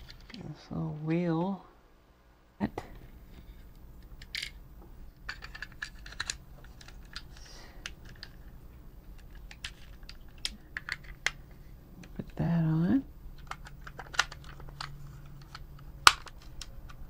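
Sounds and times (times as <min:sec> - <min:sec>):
plastic toy parts clicking: 0:04.1 - 0:04.6, 0:05.3 - 0:08.5, 0:09.1 - 0:11.4, 0:13.4 - 0:17.0.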